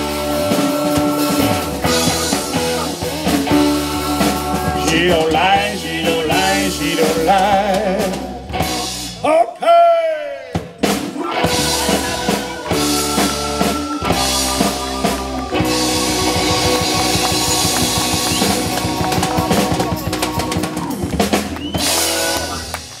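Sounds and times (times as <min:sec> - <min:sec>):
live rock band playing: 0:00.0 - 0:09.3, 0:10.5 - 0:23.0
fast drum roll: 0:10.7 - 0:23.0.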